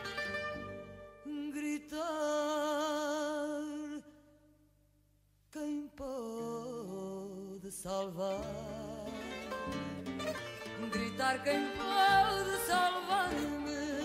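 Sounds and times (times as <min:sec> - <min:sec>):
musical accompaniment: 0:00.0 - 0:01.4, 0:08.4 - 0:14.0
person singing with vibrato: 0:01.1 - 0:04.5, 0:05.5 - 0:09.7, 0:10.7 - 0:14.0.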